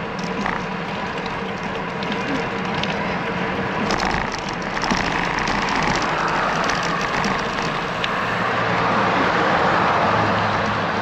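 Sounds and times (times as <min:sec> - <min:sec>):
car traffic passing: 0:00.0 - 0:11.0
car passing close: 0:04.8 - 0:11.0.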